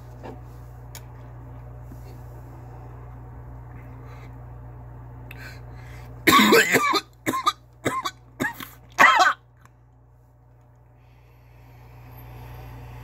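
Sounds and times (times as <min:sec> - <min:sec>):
man coughing: 0:06.3 - 0:09.4.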